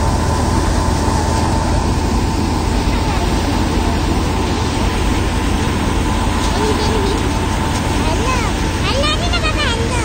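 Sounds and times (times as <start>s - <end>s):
low mechanical drone: 0.0s - 10.0s
steady high whine: 0.0s - 10.0s.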